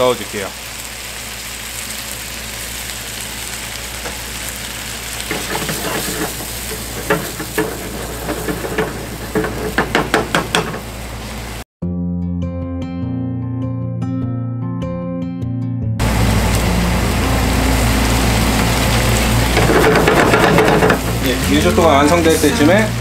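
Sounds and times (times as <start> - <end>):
wooden spatula scraping a pan: 5.3 - 10.9, 19.5 - 22.4
guitar music: 11.8 - 23.0.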